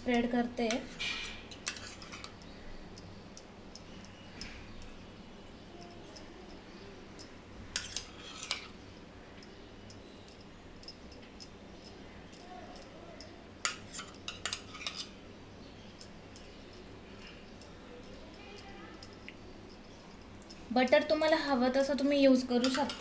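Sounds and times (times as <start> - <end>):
spoon scraping bread: 0.8 - 2.5, 7.7 - 8.8, 13.6 - 15.2.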